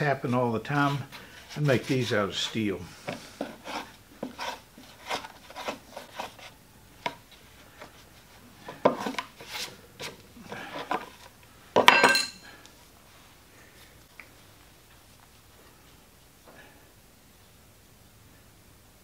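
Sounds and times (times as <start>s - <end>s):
metal tool clattering down: 11.8s - 12.5s.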